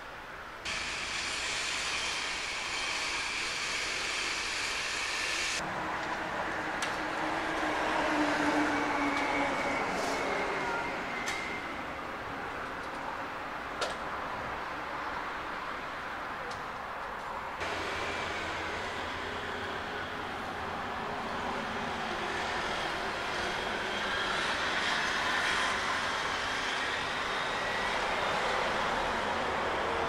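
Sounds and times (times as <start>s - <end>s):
road and rail traffic: 0.0s - 30.0s.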